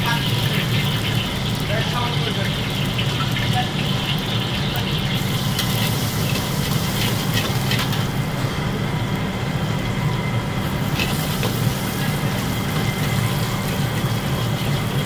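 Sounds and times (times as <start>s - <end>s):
gas burner roaring: 0.0s - 15.0s
metal spatula scraping wok: 5.4s - 8.2s, 10.8s - 13.5s.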